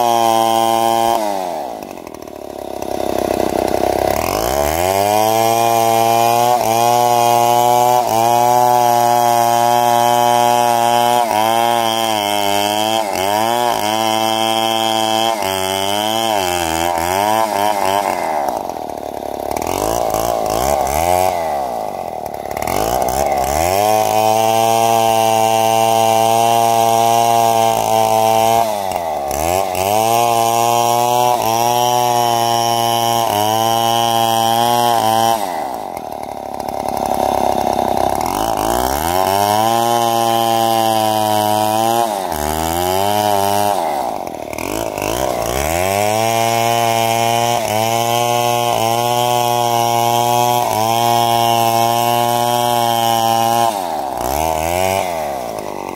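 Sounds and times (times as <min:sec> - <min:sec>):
chainsaw running at high revs: 0:00.0 - 0:55.9.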